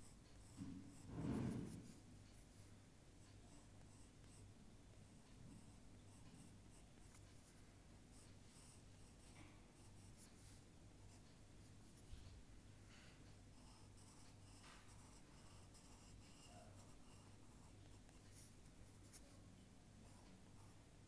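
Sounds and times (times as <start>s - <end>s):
drawing tool scratching paper: 5.0s - 12.2s, 13.5s - 19.4s.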